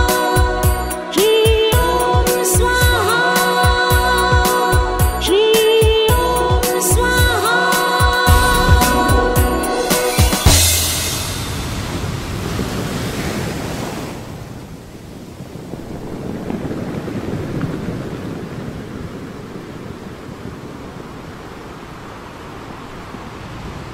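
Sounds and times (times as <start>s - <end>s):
waves washing up a beach: 11.0s - 23.9s.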